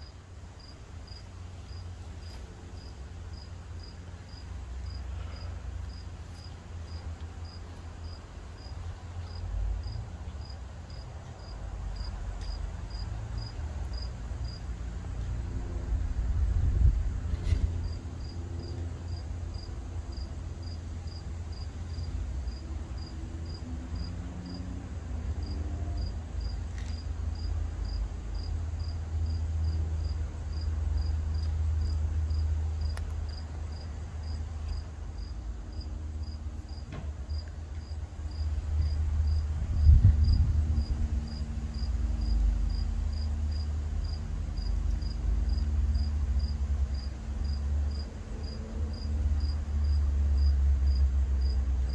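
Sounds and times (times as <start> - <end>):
insect chirping: 5.9 - 14.6, 25.4 - 29.8, 30.5 - 39.4, 40.2 - 51.9
low rumble: 38.3 - 43.1.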